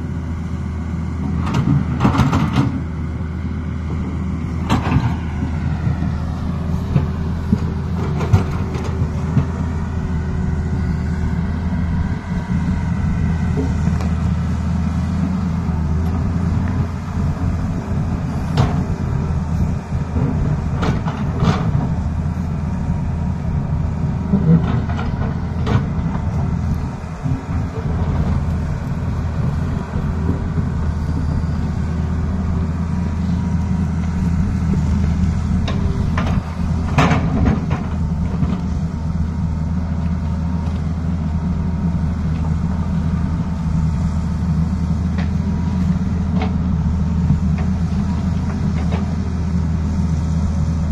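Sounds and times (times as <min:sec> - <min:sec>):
excavator diesel engine running: 0:00.0 - 0:50.9.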